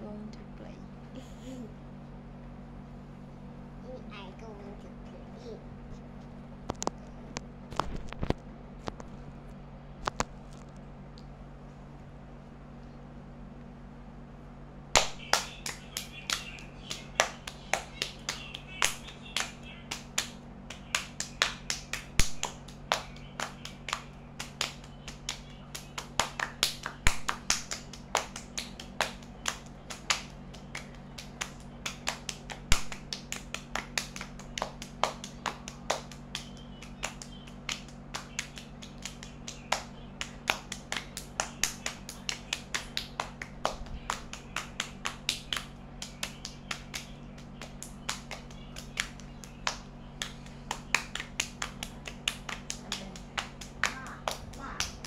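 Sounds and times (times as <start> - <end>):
hands clapping and palm slaps: 14.9 - 55.0.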